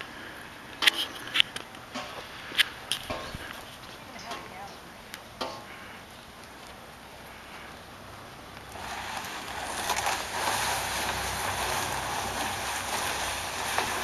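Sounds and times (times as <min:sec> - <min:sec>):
plastic barrel dragged across sand: 0:08.7 - 0:14.0.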